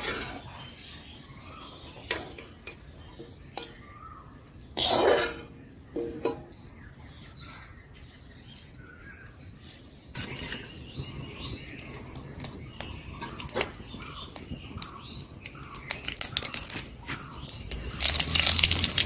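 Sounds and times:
metal spoon scraping iron pan: 0:00.0 - 0:00.7, 0:01.6 - 0:03.9, 0:04.8 - 0:06.4.

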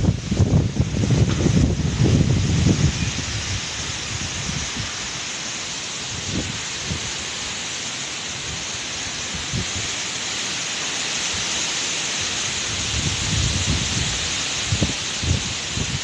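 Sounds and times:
wind gusts buffeting microphone: 0:00.0 - 0:05.2, 0:06.0 - 0:07.2, 0:08.4 - 0:10.0, 0:12.3 - 0:16.0
wind rushing through trees: 0:00.0 - 0:16.0.

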